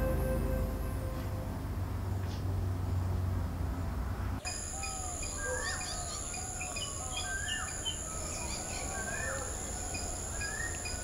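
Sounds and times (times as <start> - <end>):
small birds chirping: 4.4 - 11.0
high-pitched insect drone: 4.5 - 11.0.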